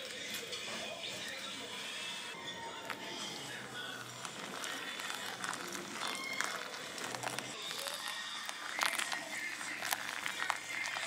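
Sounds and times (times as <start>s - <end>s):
water trickling onto coffee grounds: 2.7s - 11.0s.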